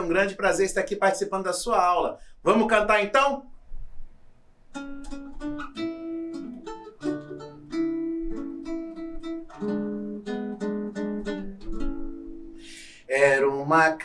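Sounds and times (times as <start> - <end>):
acoustic guitar chords: 4.7 - 14.0.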